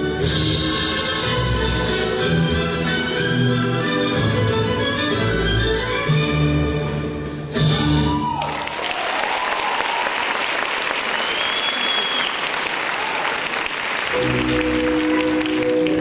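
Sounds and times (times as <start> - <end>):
orchestral string music: 0.0 - 8.1, 14.1 - 16.0
audience applause: 8.2 - 16.0.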